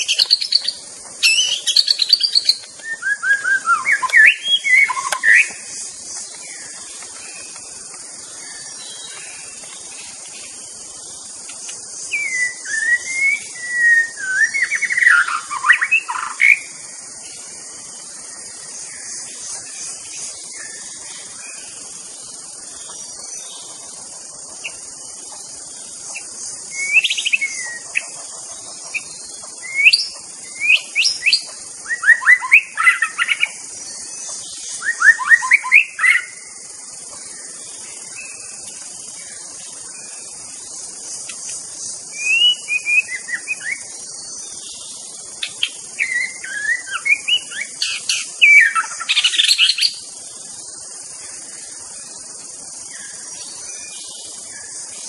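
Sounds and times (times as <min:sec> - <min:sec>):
songbird whistling and trilling: 0:00.0 - 0:05.6, 0:12.1 - 0:16.7, 0:26.7 - 0:28.1, 0:28.9 - 0:33.6, 0:34.7 - 0:36.4, 0:42.1 - 0:43.9, 0:45.4 - 0:50.0
high buzz of insects: 0:00.0 - 0:55.0.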